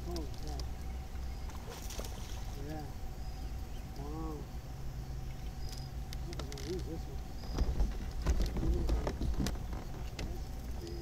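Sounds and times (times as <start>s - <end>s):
steady low rumble: 0.0s - 11.0s
fishing rod and reel clicks: 5.7s - 8.9s.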